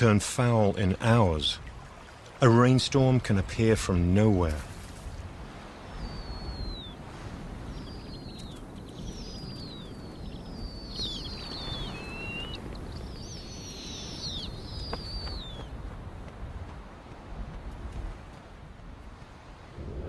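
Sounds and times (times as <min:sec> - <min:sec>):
high thin bird calls: 0:07.7 - 0:15.7.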